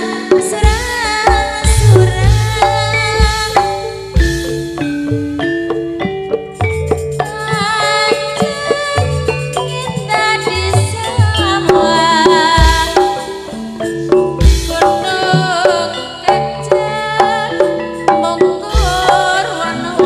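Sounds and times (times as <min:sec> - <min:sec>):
hand drums and pitched percussion: 0:00.0 - 0:20.0
wavering melody line: 0:00.0 - 0:20.0.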